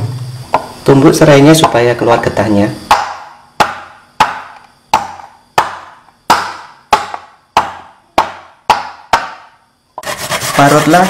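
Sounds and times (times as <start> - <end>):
pounding on wooden cutting board: 2.8 - 10.2.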